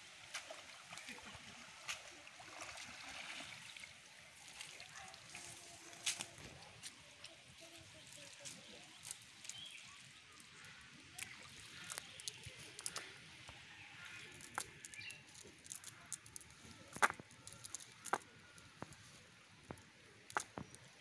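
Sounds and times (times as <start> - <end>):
light patter: 4.5 - 21.0
wet net clicking on mud: 10.4 - 19.0, 19.7 - 20.9.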